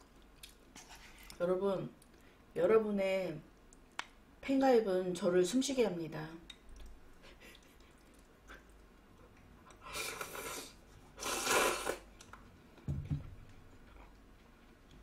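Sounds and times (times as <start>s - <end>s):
person slurping noodles: 9.8s - 12.1s.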